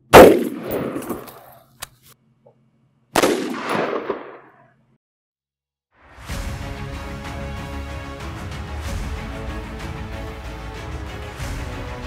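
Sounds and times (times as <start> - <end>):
gunshot echo: 0.1 - 1.3, 3.2 - 4.7
rifle shots: 0.1 - 1.4, 3.2 - 4.7.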